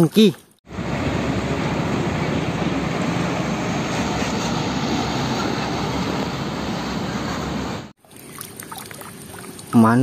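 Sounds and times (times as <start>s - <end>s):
road noise: 0.6s - 10.0s
truck diesel engine rumble: 0.7s - 7.9s.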